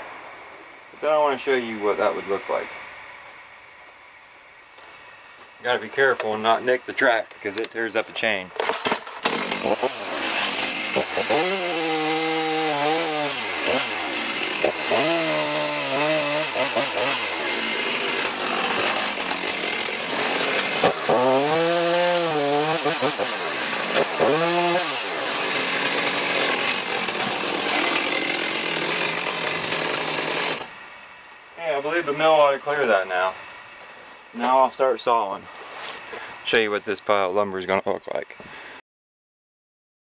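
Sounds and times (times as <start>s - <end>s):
chainsaw cutting wood: 8.6s - 30.8s.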